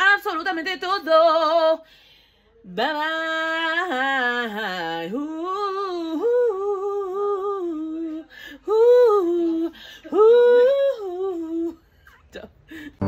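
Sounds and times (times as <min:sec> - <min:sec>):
woman singing unaccompanied: 0:00.0 - 0:01.9, 0:02.6 - 0:11.9
woman breathing: 0:01.8 - 0:02.6, 0:09.7 - 0:10.1, 0:12.6 - 0:13.0.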